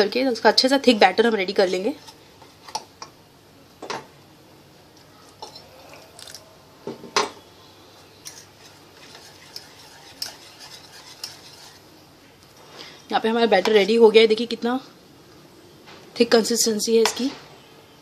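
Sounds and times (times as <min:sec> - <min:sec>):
whisk clinking against metal bowl: 0:08.2 - 0:11.8
whisk mixing batter: 0:08.2 - 0:11.9.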